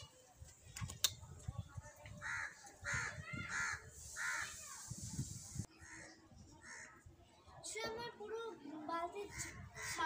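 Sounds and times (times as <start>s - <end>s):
crow cawing: 2.2s - 4.5s.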